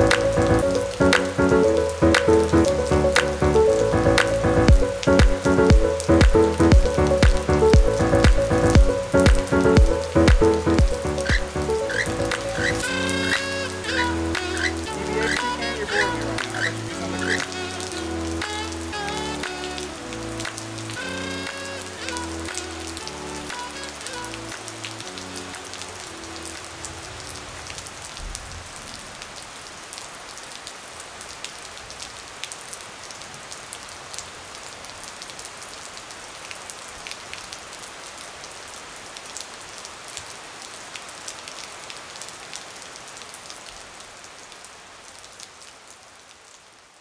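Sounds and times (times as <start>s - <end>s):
background music: 0.0s - 27.5s
steady rain falling: 0.0s - 47.0s.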